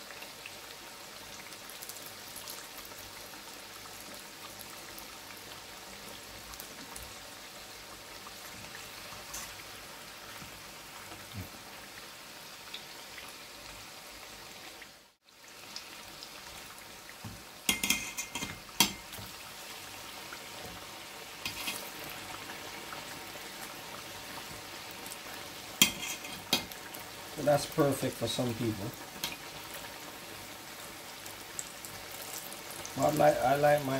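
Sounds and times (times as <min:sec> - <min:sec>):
deep-frying sizzle in oil: 0:00.0 - 0:33.9
fork clinking against metal pot: 0:17.7 - 0:19.0.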